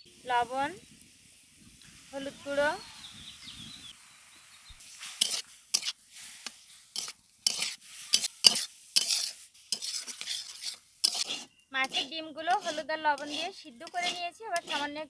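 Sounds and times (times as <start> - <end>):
faint sizzle: 0.0 - 15.0
spatula scraping metal pan: 5.0 - 15.0.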